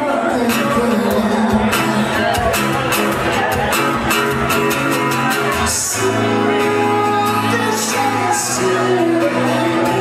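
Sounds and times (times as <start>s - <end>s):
woman singing: 0.0s - 2.4s, 5.7s - 10.0s
acoustic guitar: 0.0s - 10.0s.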